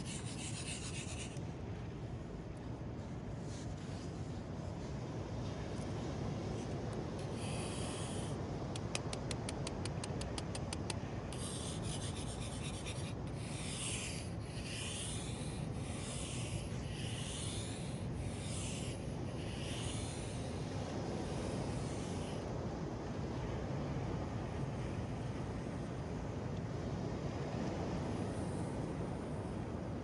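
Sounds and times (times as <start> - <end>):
scratching on sand: 0.0 - 1.4, 8.8 - 20.6.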